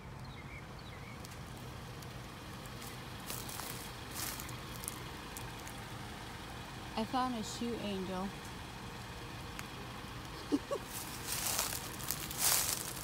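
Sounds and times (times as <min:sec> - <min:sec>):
footsteps crunching dry leaves: 0:02.6 - 0:05.8, 0:10.7 - 0:13.0
sharp crackles: 0:09.5 - 0:13.0.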